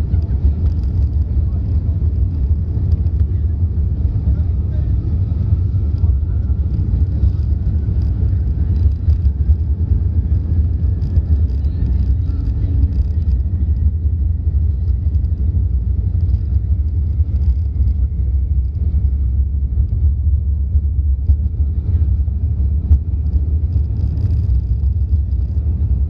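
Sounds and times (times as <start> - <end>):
jet engine cabin rumble: 0.0 - 26.0.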